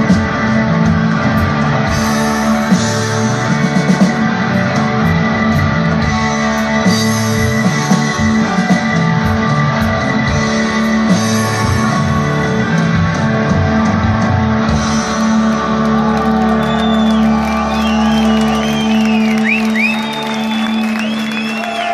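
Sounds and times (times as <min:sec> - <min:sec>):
live rock band playing: 0:00.0 - 0:21.9
audience cheering and whistling: 0:15.0 - 0:21.9.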